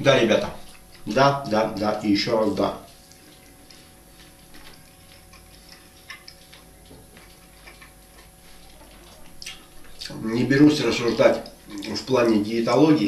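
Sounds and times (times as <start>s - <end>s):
faint steady hum: 0.0s - 13.0s
chewing: 2.5s - 12.5s.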